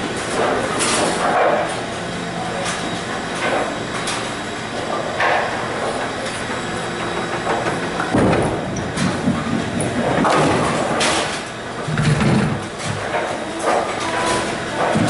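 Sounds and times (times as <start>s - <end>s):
pinsetter machinery rumbling: 0.0s - 15.0s
knocks and clatter from lanes: 7.4s - 15.0s.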